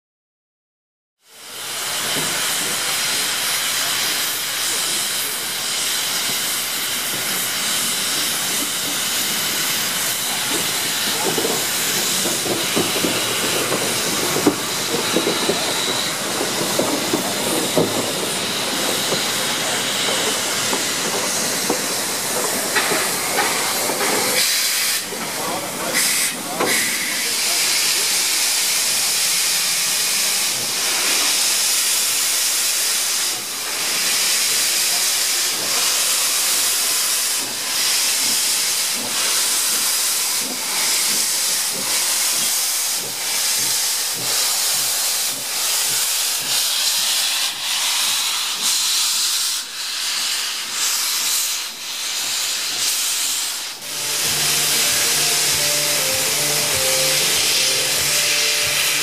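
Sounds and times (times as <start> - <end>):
steam locomotive hissing steam: 1.2 - 59.0
music: 53.9 - 59.0.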